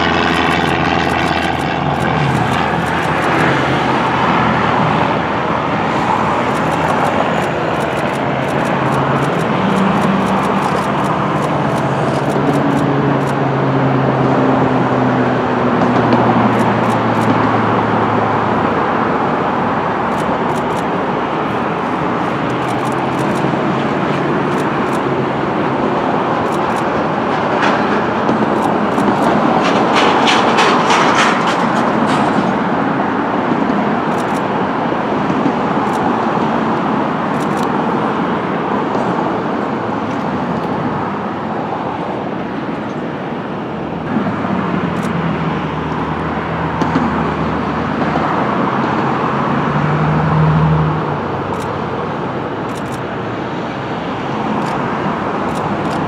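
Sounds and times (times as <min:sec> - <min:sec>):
engine and traffic noise: 0:00.0 - 0:56.0
quick clicks: 0:00.2 - 0:03.8, 0:06.4 - 0:13.4, 0:16.4 - 0:17.4, 0:20.1 - 0:23.6, 0:24.4 - 0:25.1, 0:26.4 - 0:27.0, 0:28.5 - 0:31.8, 0:34.1 - 0:34.5, 0:35.8 - 0:36.1, 0:37.3 - 0:37.8, 0:45.0 - 0:45.2, 0:52.7 - 0:53.0, 0:54.6 - 0:54.8, 0:55.5 - 0:56.0.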